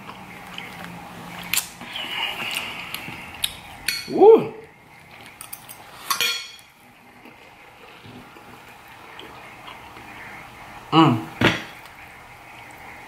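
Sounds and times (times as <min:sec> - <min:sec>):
faint chewing: 0:00.0 - 0:03.8, 0:07.2 - 0:10.4
slurp through a straw: 0:01.8 - 0:03.4.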